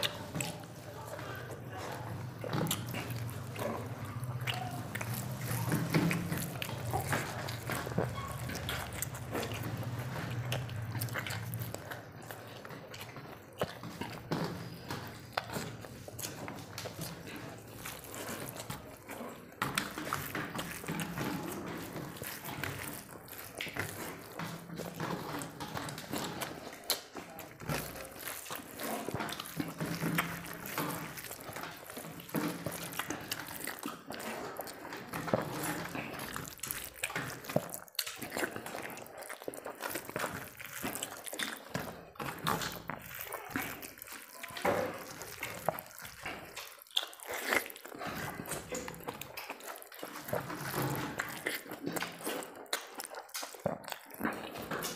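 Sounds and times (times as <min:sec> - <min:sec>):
chewing: 0:00.0 - 0:54.9
fingers squelching in rice: 0:00.0 - 0:54.9.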